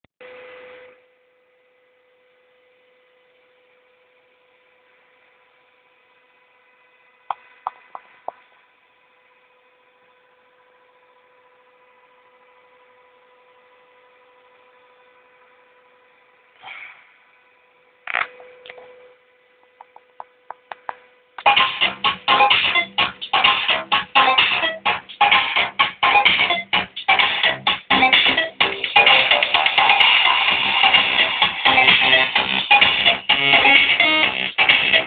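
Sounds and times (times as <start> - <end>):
tube amplifier humming: 0.2 - 35.0
crackling bursts: 18.0 - 18.9.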